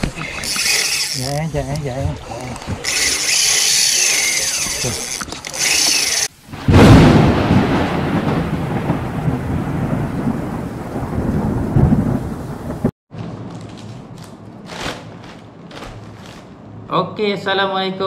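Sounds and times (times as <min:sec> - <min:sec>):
rain-like hiss: 0:06.2 - 0:12.9
thunder crash and rumble: 0:06.5 - 0:12.9.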